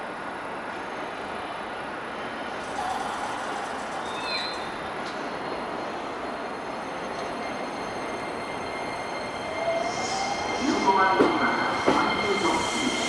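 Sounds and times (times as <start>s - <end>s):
electric train running: 2.6s - 4.6s.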